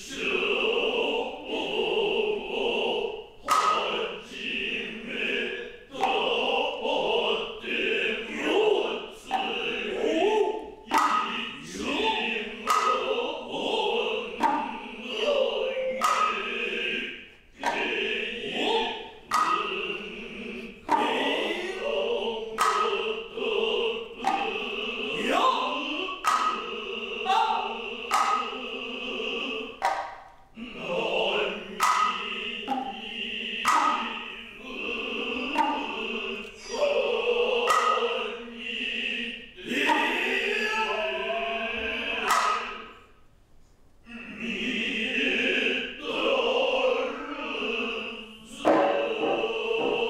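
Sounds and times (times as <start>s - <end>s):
drummers' drawn-out vocal calls: 0.0s - 43.2s, 44.1s - 50.0s
sharp drum strokes: 0.0s - 43.2s, 45.1s - 50.0s
shrill bamboo flute: 8.5s - 16.9s, 17.6s - 19.8s, 20.4s - 28.6s, 35.0s - 38.2s, 39.7s - 43.0s.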